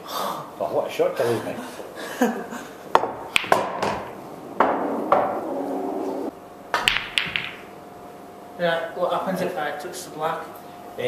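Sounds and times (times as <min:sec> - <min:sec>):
cue tip hitting ball: 0:02.9 - 0:07.7
pool balls clacking: 0:02.9 - 0:07.7.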